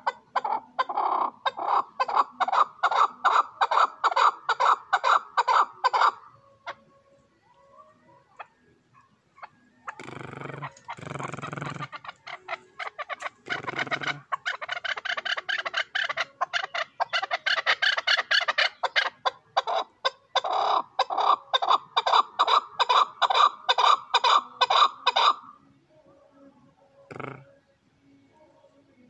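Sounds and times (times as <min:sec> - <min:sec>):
partridge rapid clucking: 0:09.9 - 0:25.4.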